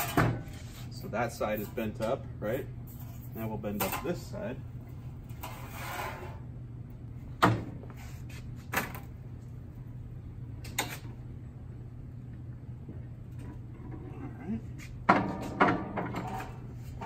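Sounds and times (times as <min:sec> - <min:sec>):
low hum: 0:09.0 - 0:15.1.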